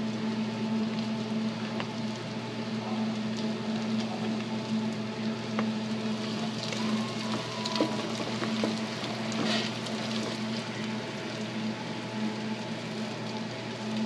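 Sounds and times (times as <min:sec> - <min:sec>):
bacon sizzling in fat: 0:00.0 - 0:14.0
low steady hum: 0:00.0 - 0:14.0.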